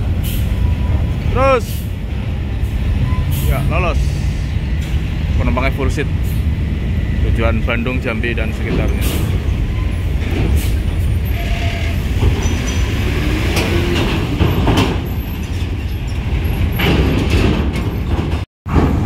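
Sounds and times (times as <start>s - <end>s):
coach buses rolling past: 0.0s - 19.0s
clanks: 12.1s - 19.0s.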